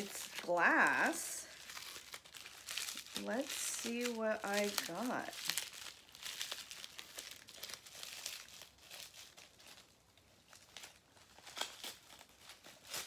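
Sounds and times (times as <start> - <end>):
packing paper crinkling and tearing: 0.0 - 13.0.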